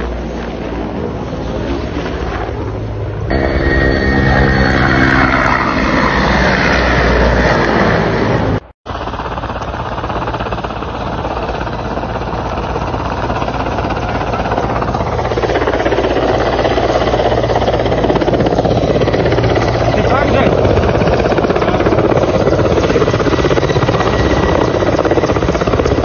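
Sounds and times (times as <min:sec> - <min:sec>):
helicopter rotor chopping: 0:00.1 - 0:26.0.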